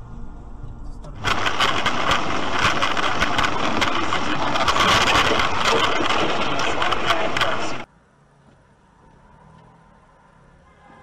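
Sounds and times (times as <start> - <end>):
heavy rain on car windshield: 1.2 - 7.9.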